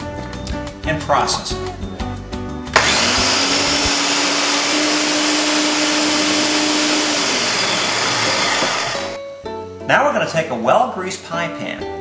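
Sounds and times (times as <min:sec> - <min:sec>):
food processor whirring: 0:02.7 - 0:09.2.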